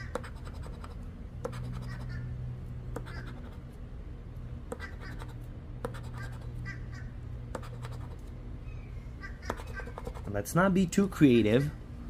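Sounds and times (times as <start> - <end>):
coin scratching lottery ticket: 0.0 - 2.2, 2.9 - 3.7, 4.8 - 6.6, 7.6 - 8.3, 9.5 - 10.4.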